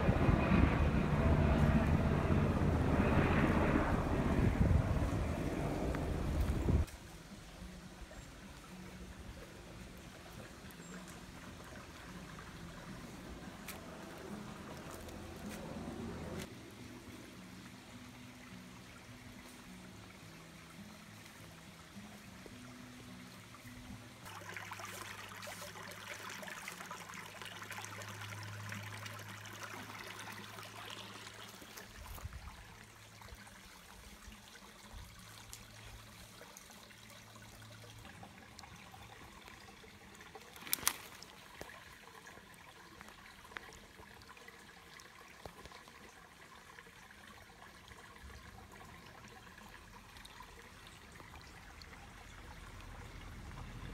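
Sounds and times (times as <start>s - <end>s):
low steady hum: 0.0s - 6.9s
creek water trickling over stones: 4.6s - 53.9s.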